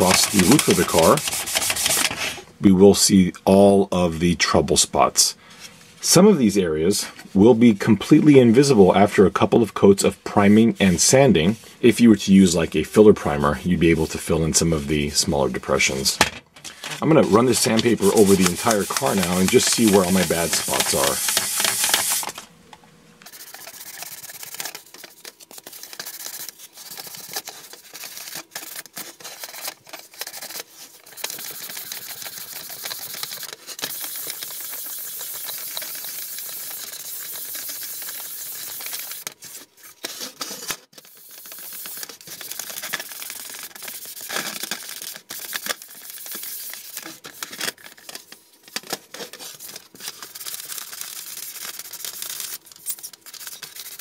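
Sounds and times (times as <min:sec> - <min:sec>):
sandpaper scratching plastic: 0:00.0 - 0:02.4, 0:17.2 - 0:22.4, 0:23.2 - 0:54.0.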